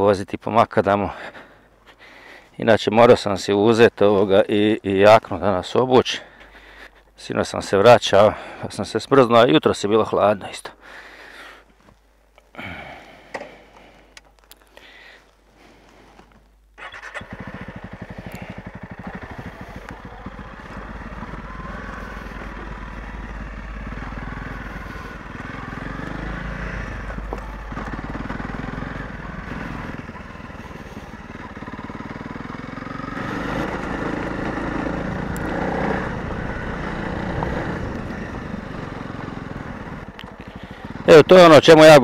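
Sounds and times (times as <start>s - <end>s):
tyres on dirt and gravel: 0.0s - 42.0s
motorcycle engine starting and revving: 16.8s - 42.0s.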